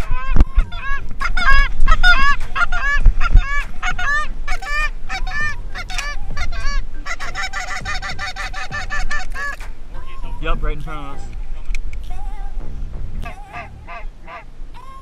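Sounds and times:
geese honking: 0.0s - 12.6s, 13.2s - 15.0s.

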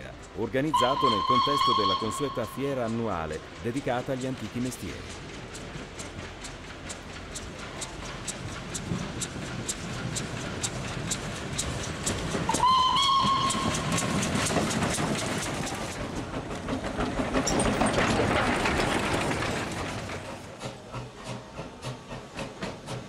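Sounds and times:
steam engine beat: 0.0s - 17.0s, 20.6s - 23.0s
steam locomotive whistle: 0.6s - 2.9s, 12.5s - 14.1s
steam hissing: 20.4s - 23.0s.

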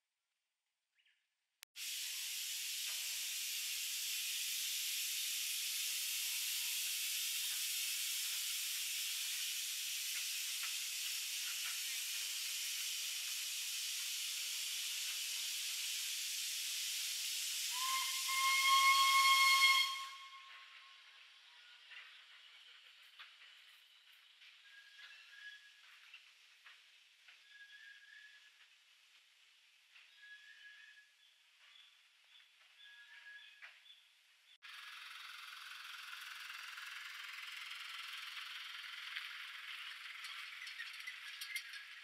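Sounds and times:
locomotive venting steam: 1.8s - 26.9s, 34.7s - 42.0s
steam whistle: 17.3s - 21.0s.

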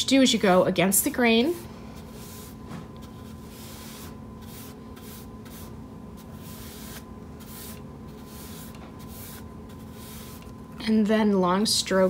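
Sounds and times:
brush swishing paint on wood: 1.9s - 10.5s.

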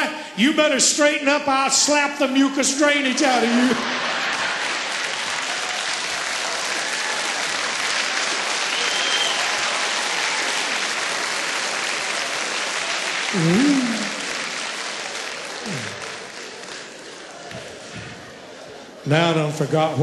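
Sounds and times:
audience applauding: 3.2s - 19.0s.

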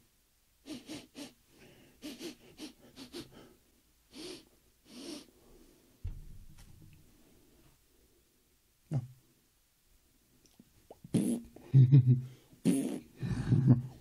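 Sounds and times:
man sniffing: 0.6s - 5.4s, 11.2s - 14.0s.

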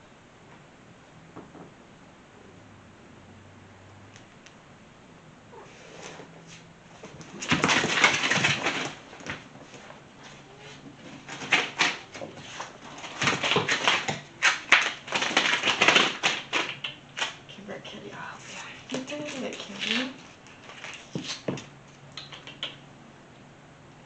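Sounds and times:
cat scuffling and rustling: 5.5s - 17.4s, 18.4s - 21.7s.

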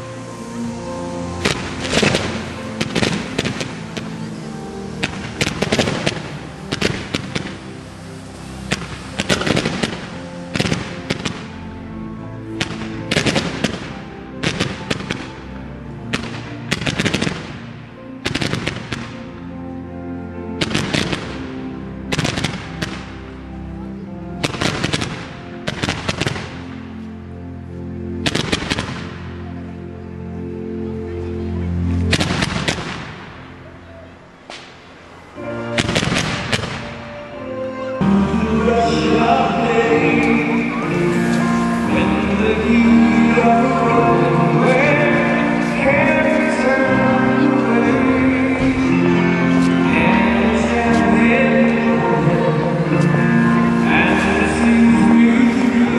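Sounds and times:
music: 0.0s - 55.9s
fireworks bangs and crackle: 1.4s - 4.3s, 4.9s - 11.5s, 12.6s - 15.4s, 16.1s - 17.6s, 18.2s - 19.2s, 20.6s - 21.4s, 22.1s - 23.1s, 24.4s - 26.7s, 28.3s - 29.2s, 32.1s - 33.2s, 35.7s - 37.0s.

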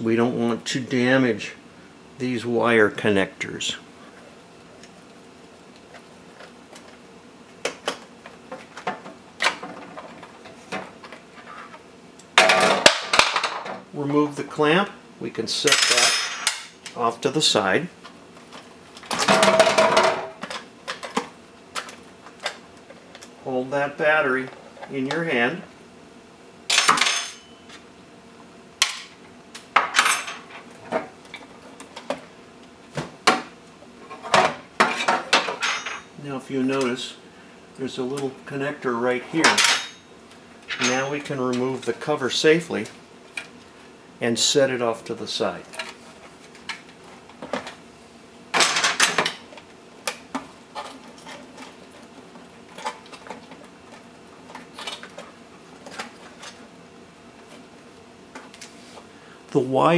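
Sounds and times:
rustling and scraping: 58.4s - 59.1s.

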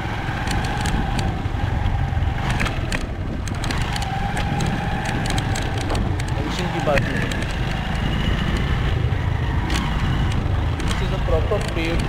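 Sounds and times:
motorcycle engine running: 0.0s - 12.0s
clicks and knocks from bumpy ground: 2.4s - 8.0s, 9.7s - 12.0s.

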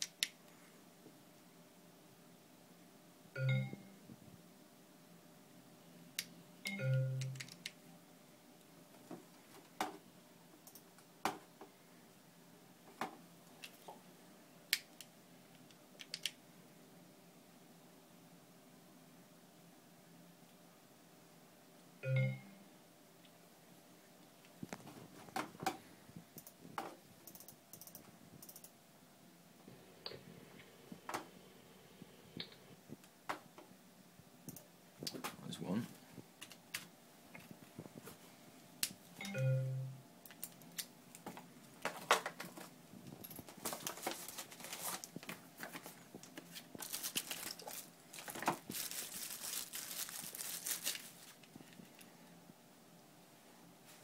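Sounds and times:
computer keyboard and mouse clicking: 7.2s - 7.8s, 10.6s - 10.9s, 14.8s - 16.4s, 27.2s - 28.7s.

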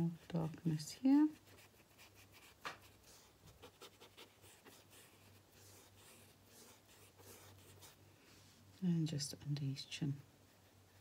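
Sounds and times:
paintbrush scratching on paper: 0.0s - 8.0s.

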